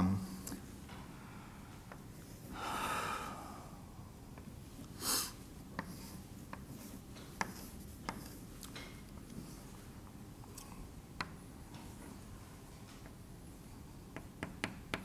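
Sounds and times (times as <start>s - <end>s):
short sniff: 5.0s - 5.4s
chalk tapping on blackboard: 5.7s - 8.9s, 14.1s - 15.0s.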